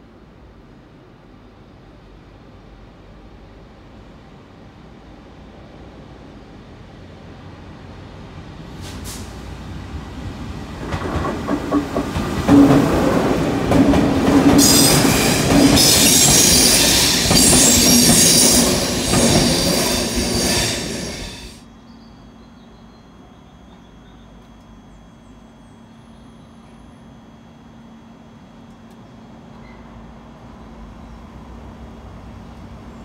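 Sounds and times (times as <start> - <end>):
freight train passing: 0.0 - 22.5, 23.1 - 33.0
loud high hiss: 14.6 - 21.6.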